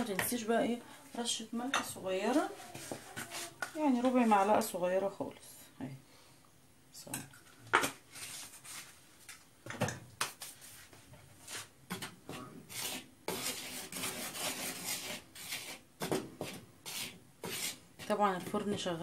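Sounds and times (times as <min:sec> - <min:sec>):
spoon scraping plastic bowl: 0:02.2 - 0:04.6, 0:11.5 - 0:19.0.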